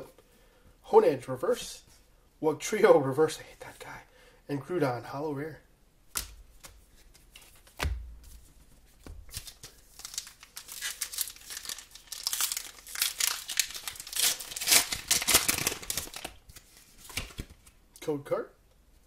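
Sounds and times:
foil wrapper crinkling and tearing: 0:09.3 - 0:17.4.

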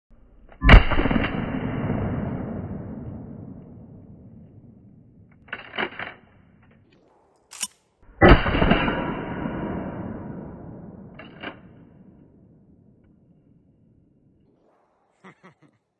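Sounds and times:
loud shotgun shot: 0:00.6 - 0:04.8, 0:07.5 - 0:12.4
gunshot echo: 0:00.6 - 0:05.7, 0:08.1 - 0:13.7
shotgun action metallic clatter: 0:05.3 - 0:09.5, 0:11.0 - 0:11.9.

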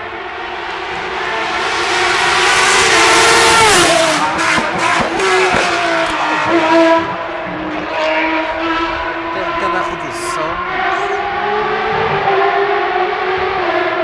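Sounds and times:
rally car engine at high revs: 0:00.0 - 0:14.0.

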